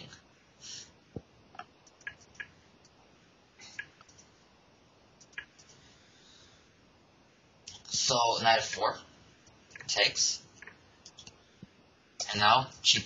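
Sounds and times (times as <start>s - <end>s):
low steady hiss: 0.0s - 13.0s
computer mouse clicks: 1.5s - 3.0s, 3.6s - 4.3s, 5.2s - 5.8s, 9.4s - 9.9s, 10.6s - 11.4s.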